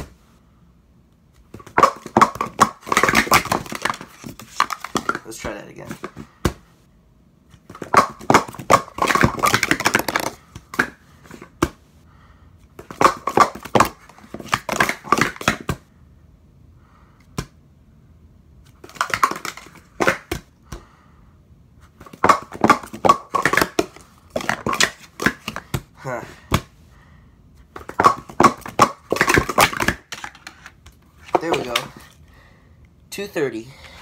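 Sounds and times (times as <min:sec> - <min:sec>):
plastic cups clacking: 0:01.6 - 0:05.3, 0:07.7 - 0:11.5, 0:12.8 - 0:15.7, 0:18.8 - 0:20.4, 0:22.1 - 0:25.8, 0:27.8 - 0:32.2.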